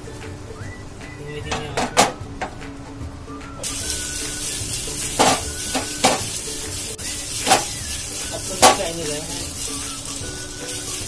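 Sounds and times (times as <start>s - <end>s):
vegetables sizzling in oil: 3.6s - 11.0s
wooden spatula scraping pan: 5.0s - 10.1s.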